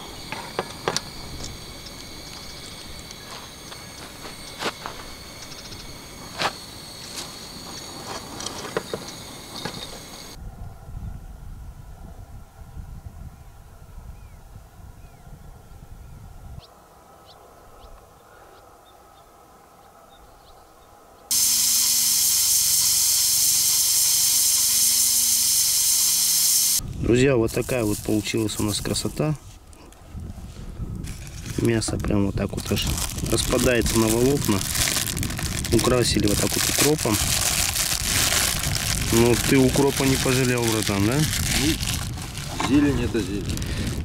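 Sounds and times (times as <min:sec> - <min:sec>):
high-pitched insect chirring: 0:00.0 - 0:10.4, 0:21.3 - 0:26.8, 0:32.4 - 0:44.0
wind rumble on microphone: 0:10.1 - 0:16.7, 0:26.8 - 0:44.0
pressure cooker steam hissing: 0:21.3 - 0:26.8, 0:32.7 - 0:43.9.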